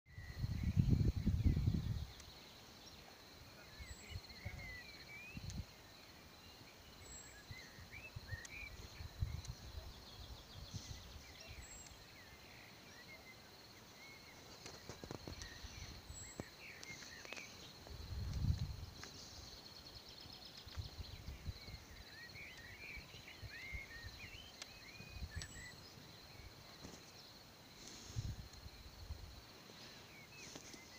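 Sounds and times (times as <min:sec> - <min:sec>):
wind rumble on microphone: 0:00.1 - 0:02.2, 0:05.4 - 0:05.8, 0:07.4 - 0:11.7, 0:17.8 - 0:19.0, 0:20.6 - 0:26.6, 0:28.0 - 0:29.4
small birds twittering: 0:00.1 - 0:30.9.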